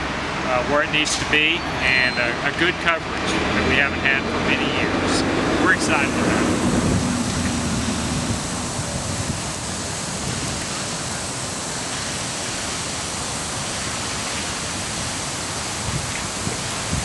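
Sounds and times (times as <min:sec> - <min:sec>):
sprinkler water spraying hiss: 0:05.7 - 0:17.0.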